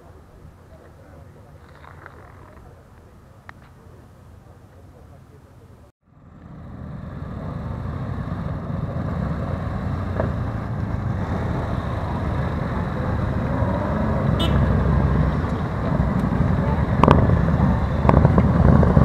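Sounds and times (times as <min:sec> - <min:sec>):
motorcycles riding past: 0:06.1 - 0:19.0.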